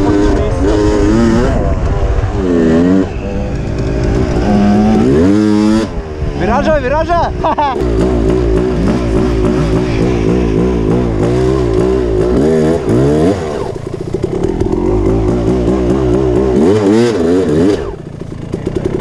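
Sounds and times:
dirt bike engine revving: 0.0s - 19.0s.

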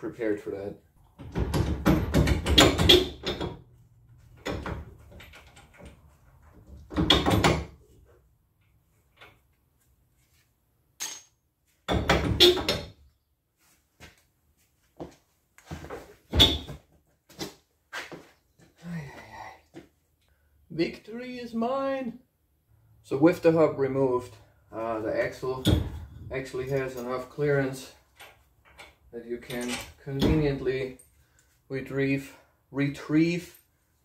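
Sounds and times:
metal clunks and rattles: 1.0s - 3.7s, 4.3s - 7.8s, 25.5s - 27.0s.

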